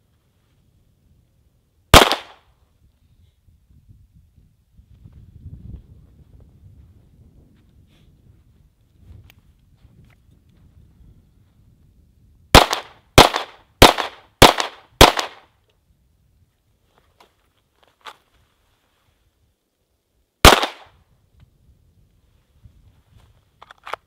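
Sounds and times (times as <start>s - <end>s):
pistol shots: 1.9s - 2.4s, 12.6s - 15.4s, 20.4s - 20.9s.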